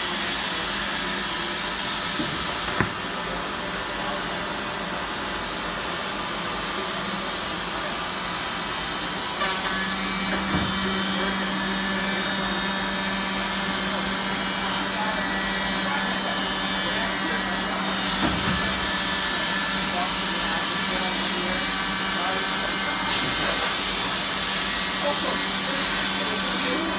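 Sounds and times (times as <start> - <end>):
high machine whine: 0.0 - 26.9
machine whirring hiss: 18.0 - 26.9.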